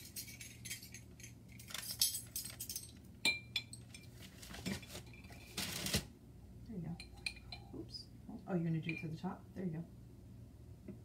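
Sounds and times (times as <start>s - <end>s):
spoon clinking against jar: 7.0s - 7.8s.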